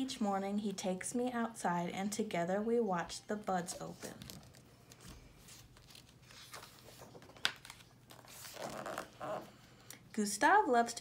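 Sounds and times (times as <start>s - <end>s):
book page turning: 3.6s - 9.5s.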